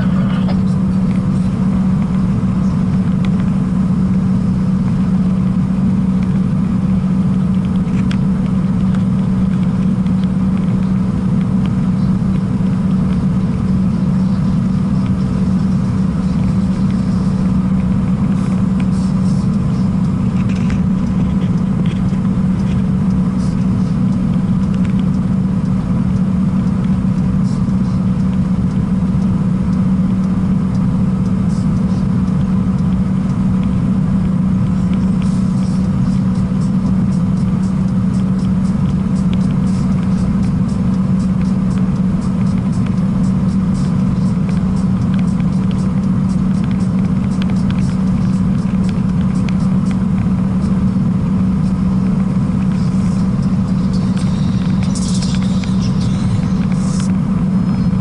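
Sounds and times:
truck engine low drone: 0.0s - 58.0s
tyre and road noise: 0.0s - 58.0s.

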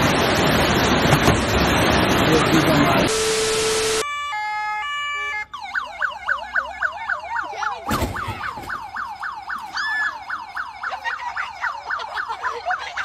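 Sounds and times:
police siren yelping: 3.0s - 13.0s
bump: 7.8s - 10.2s.

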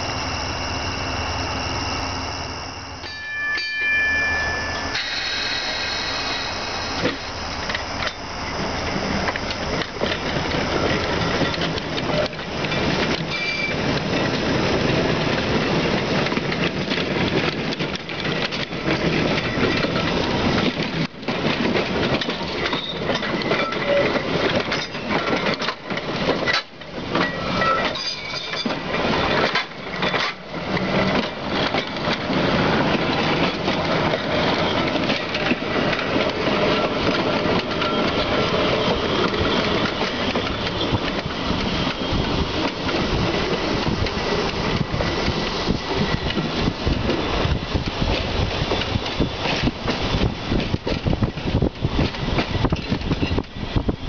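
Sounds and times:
high wheel squeal: 0.0s - 14.8s, 22.5s - 25.2s, 27.2s - 30.4s, 31.2s - 46.5s
streetcar wheels rumbling on rail: 0.0s - 54.0s.

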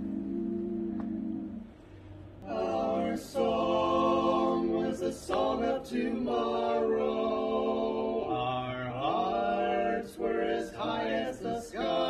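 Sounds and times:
male vocal quartet singing: 2.4s - 12.0s.

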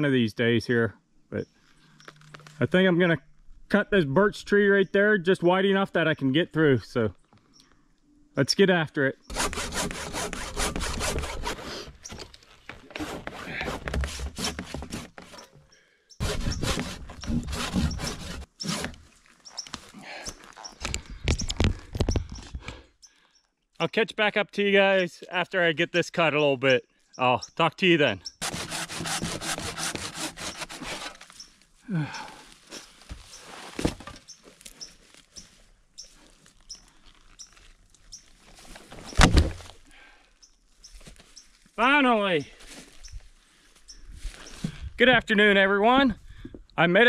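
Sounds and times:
hand saw cutting wood: 9.3s - 12.0s, 12.8s - 15.6s, 16.2s - 19.1s, 28.4s - 31.3s.

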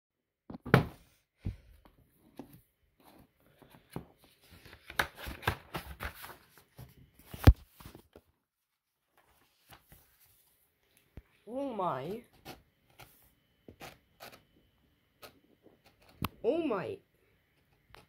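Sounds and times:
paper rustling: 3.7s - 8.2s, 9.1s - 10.7s
pages turning: 4.2s - 8.2s, 9.1s - 10.7s.

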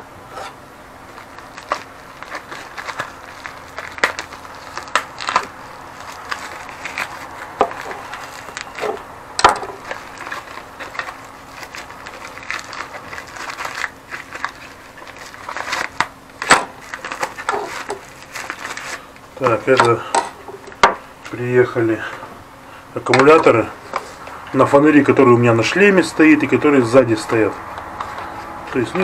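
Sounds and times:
plastic packet crinkling: 1.0s - 21.4s.

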